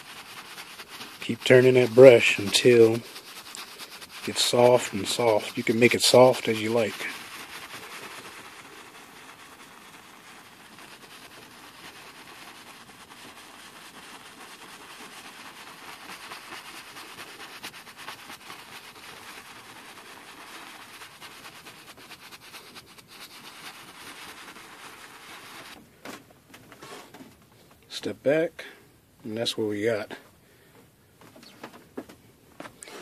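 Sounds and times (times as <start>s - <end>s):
paintbrush scrubbing on canvas: 0.0s - 25.8s.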